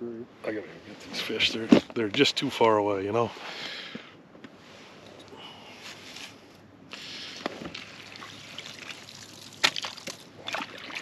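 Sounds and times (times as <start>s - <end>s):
water trickling and sloshing: 7.6s - 11.0s.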